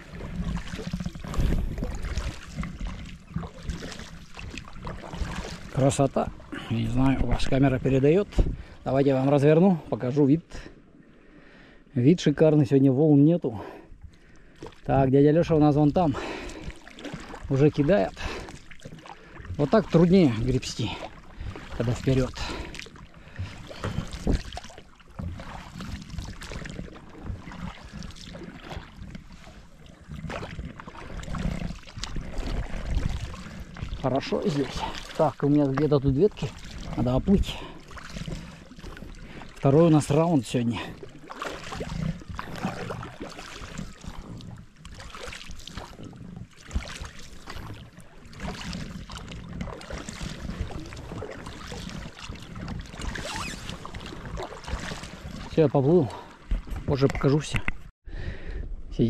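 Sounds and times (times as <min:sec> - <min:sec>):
wind rumble on microphone: 0:00.0 - 0:03.5, 0:06.7 - 0:08.8, 0:30.1 - 0:34.4, 0:47.5 - 0:55.6
oars splashing water: 0:00.0 - 0:57.9.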